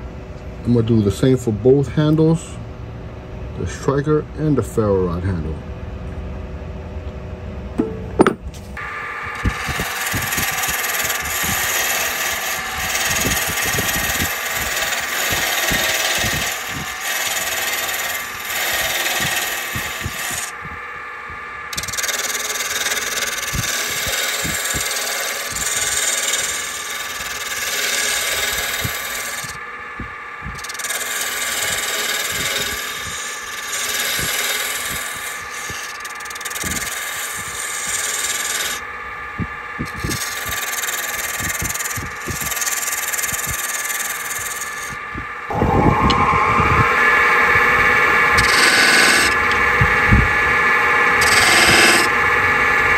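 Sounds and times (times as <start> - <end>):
tool scraping spinning wood: 7.8 - 20.8, 21.6 - 29.6, 30.5 - 39.0, 39.8 - 52.7
lathe motor hum: 8.8 - 52.9.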